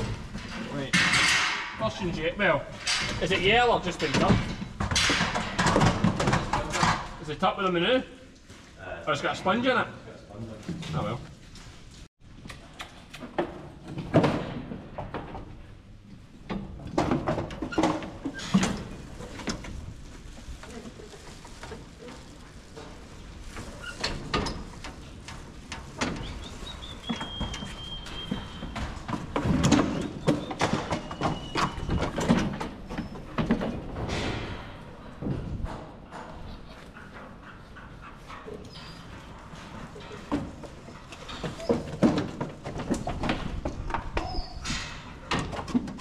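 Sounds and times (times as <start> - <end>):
hooves scrabbling on slatted floor: 0.0 - 7.3, 12.9 - 46.0
metal gates clattering and knocking: 0.0 - 7.4, 16.4 - 19.6, 24.0 - 36.6.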